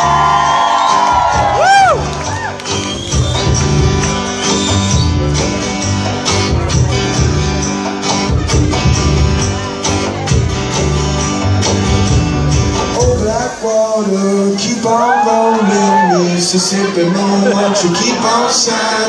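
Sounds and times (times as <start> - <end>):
acoustic guitar strumming: 0.9 - 15.0.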